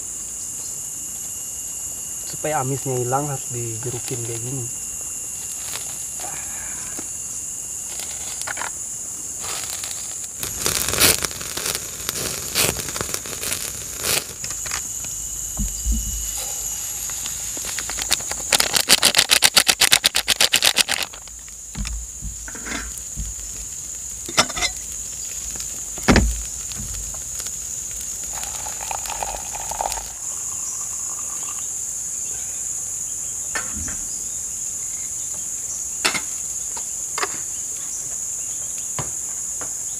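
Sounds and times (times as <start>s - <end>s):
crickets and insects chirping: 0.0s - 39.9s
loud fast rattle: 15.6s - 23.1s.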